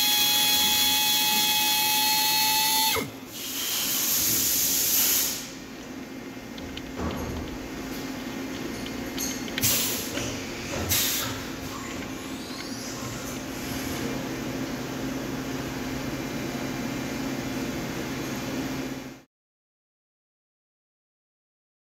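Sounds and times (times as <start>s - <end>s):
short sharp hisses: 3.4s - 5.6s.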